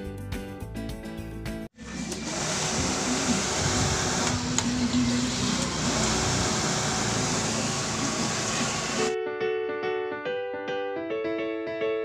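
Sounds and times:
motorcycle engine running: 1.8 - 9.2.

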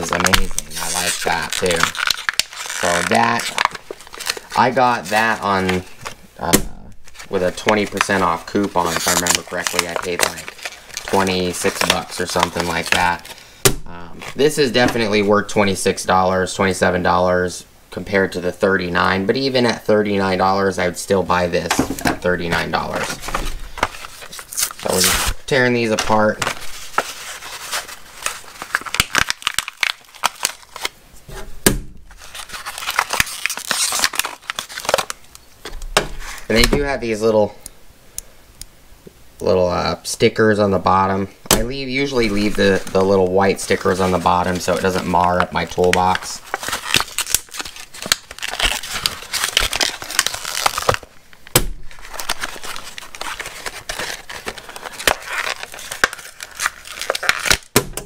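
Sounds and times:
plastic packaging tearing and crinkling: 0.0 - 15.4, 21.2 - 31.0, 32.0 - 36.7, 41.0 - 57.8.

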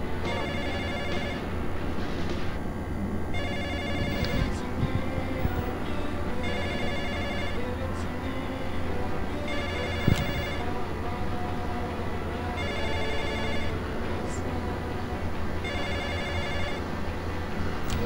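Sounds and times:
low hum: 0.0 - 18.0
telephone ringing: 0.1 - 1.7, 3.3 - 4.7, 6.3 - 7.9, 9.4 - 10.8, 12.5 - 13.8, 15.6 - 17.0.

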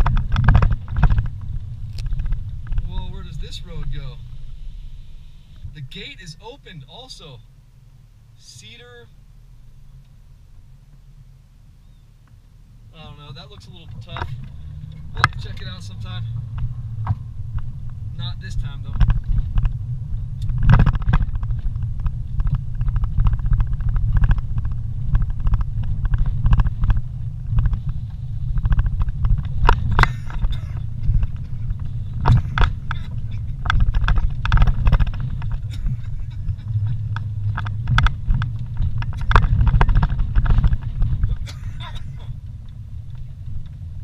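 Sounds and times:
knocks and rattles: 0.0 - 3.2, 20.5 - 43.8
vehicle rumbling on dirt road: 0.0 - 44.0.

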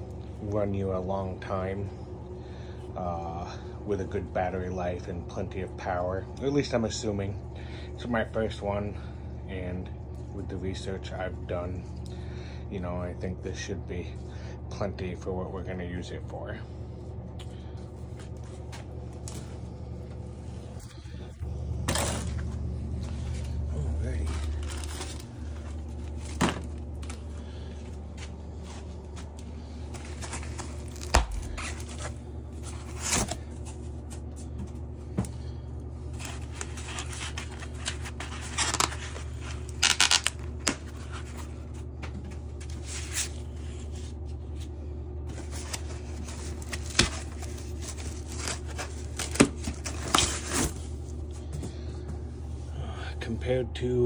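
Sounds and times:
steady low hum: 0.0 - 54.0
foam wrap rustling and tearing: 29.9 - 33.8, 36.1 - 41.6, 45.3 - 51.0.

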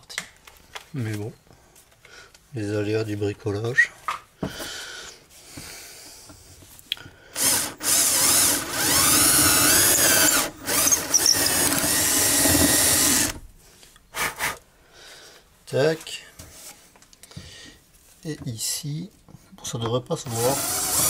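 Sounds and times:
electric drill boring wood: 7.4 - 13.4, 20.2 - 21.0.

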